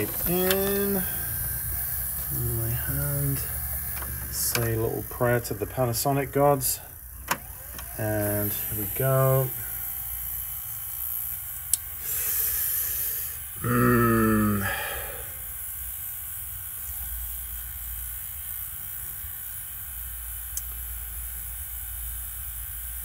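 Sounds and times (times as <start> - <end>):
tape hiss and static: 0.0 - 10.1
low hum: 0.0 - 10.6.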